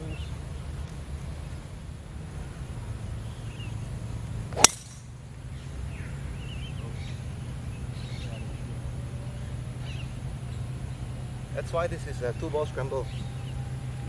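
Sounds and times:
golf club striking ball: 4.5s - 5.2s.

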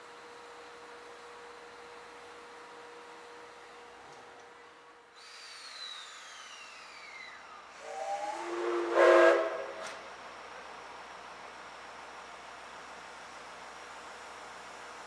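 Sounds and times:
steam locomotive whistle: 7.8s - 10.0s.

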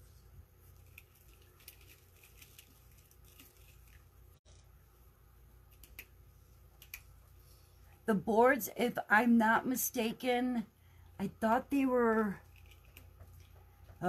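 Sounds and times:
ribbon rustling and crinkling: 0.0s - 4.8s
low room hum: 0.0s - 14.0s.

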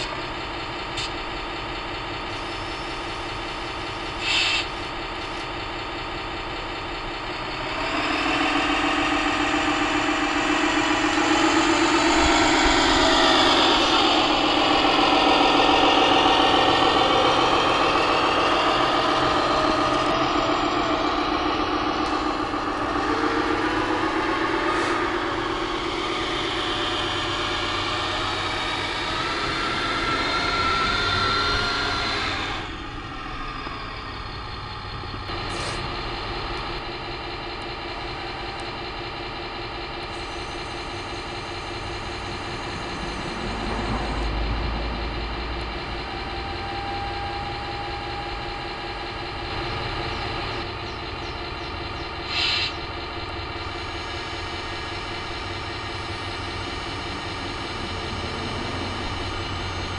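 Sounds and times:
model truck engine: 0.0s - 59.9s.

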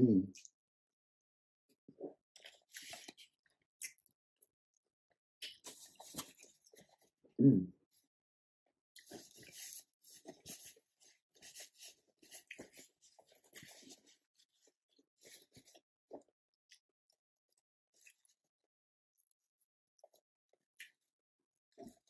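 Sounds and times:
close-up chewing: 9.0s - 16.3s.

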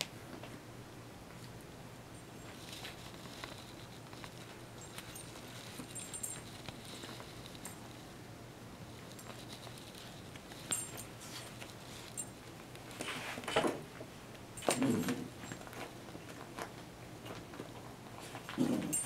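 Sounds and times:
collar tag clinking: 2.1s - 8.1s, 8.8s - 12.7s, 14.6s - 15.7s, 18.6s - 19.0s.

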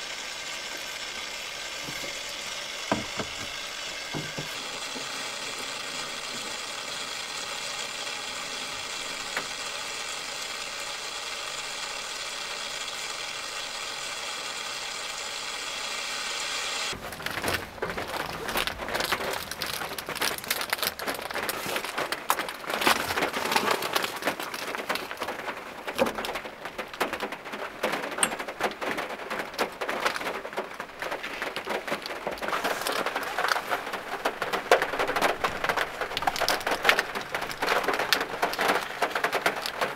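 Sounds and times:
steady hiss: 0.0s - 17.0s
heavy rain on a van roof: 0.0s - 39.9s.

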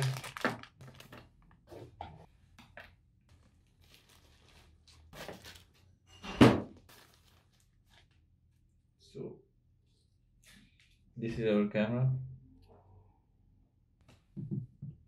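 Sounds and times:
plastic packaging rustling: 0.0s - 1.6s, 3.3s - 5.9s, 6.9s - 8.2s.

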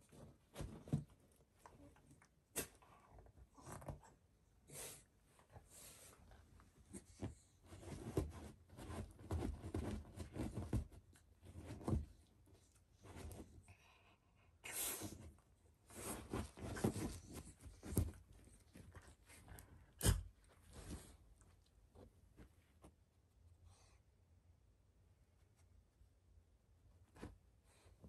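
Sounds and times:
dog pawing at a pillow: 0.1s - 1.2s, 7.0s - 12.2s, 15.9s - 19.0s.

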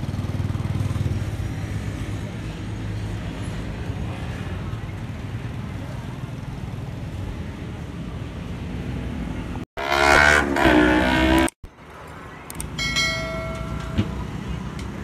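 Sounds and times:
roadside traffic noise: 0.0s - 15.0s
loud pitch-shifting sound: 9.8s - 11.6s.

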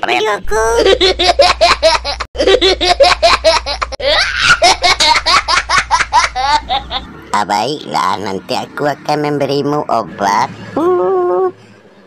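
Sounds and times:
boys laughing: 0.7s - 7.2s.

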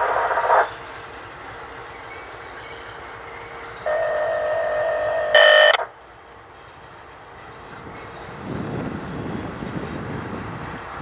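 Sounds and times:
train running: 0.0s - 11.0s.

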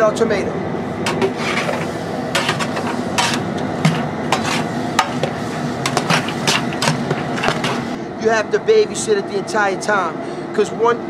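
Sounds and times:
metal paddle scraping stockpot: 1.0s - 8.0s.

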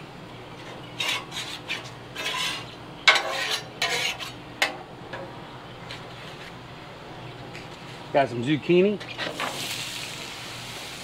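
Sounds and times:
metal spatula scraping griddle: 0.6s - 4.4s.

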